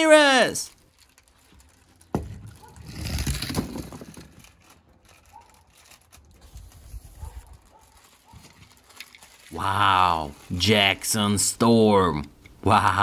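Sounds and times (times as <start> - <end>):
plastic balls rustling: 0.0 - 12.6.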